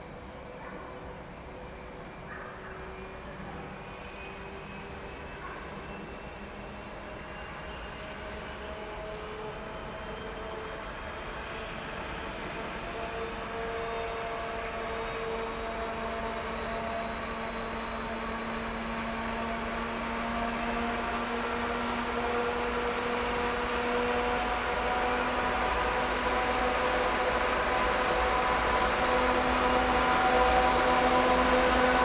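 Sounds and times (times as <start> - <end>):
diesel locomotive engine drone: 0.0 - 32.0
high whine rising in pitch: 16.4 - 32.0.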